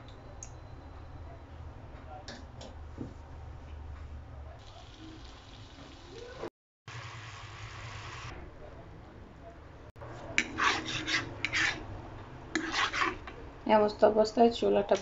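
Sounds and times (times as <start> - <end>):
fork scraping a pan: 10.4 - 11.9, 12.6 - 13.3.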